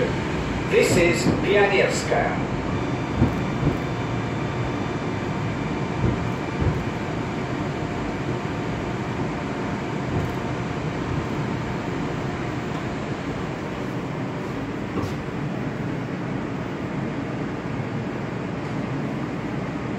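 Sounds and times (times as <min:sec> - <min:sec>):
metro car rolling noise: 0:00.0 - 0:19.9
soft thumps: 0:03.1 - 0:04.0, 0:06.0 - 0:07.0, 0:10.1 - 0:11.5.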